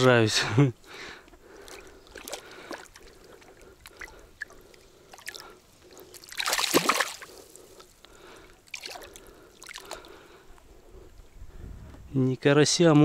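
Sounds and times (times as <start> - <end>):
fish splashing in water: 1.4 - 7.7, 8.6 - 10.2.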